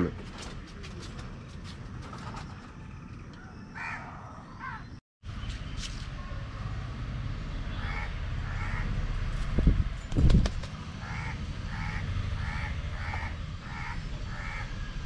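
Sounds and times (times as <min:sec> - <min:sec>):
crows cawing: 0:03.8 - 0:04.9, 0:07.7 - 0:09.1, 0:11.0 - 0:15.0.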